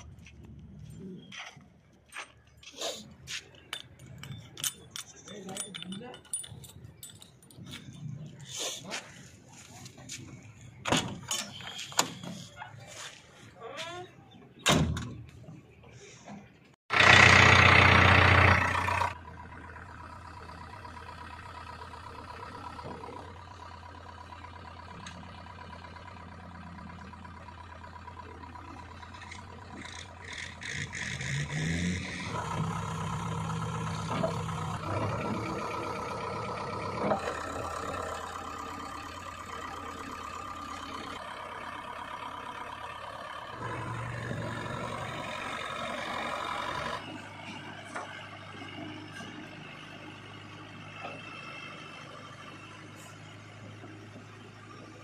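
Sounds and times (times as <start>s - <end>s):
diesel engine starting and idling: 14.1s - 55.0s.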